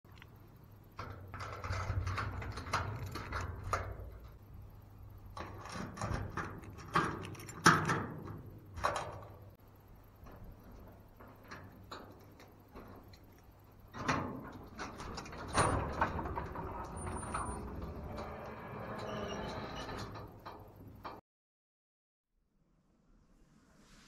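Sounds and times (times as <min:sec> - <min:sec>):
clattering knocks and scrapes: 0:01.0 - 0:04.5, 0:05.3 - 0:09.4, 0:10.2 - 0:21.2.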